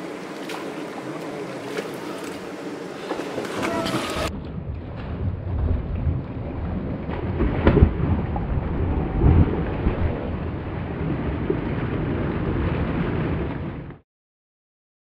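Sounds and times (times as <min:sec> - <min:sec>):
person splashing through water: 0:00.0 - 0:04.3
steady rumbling noise: 0:00.0 - 0:14.0.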